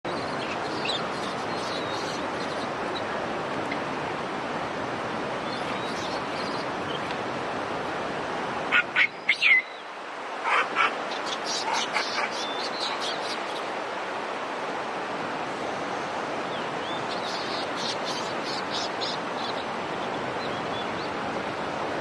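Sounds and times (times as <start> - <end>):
monkeys calling: 10.4 - 13.1.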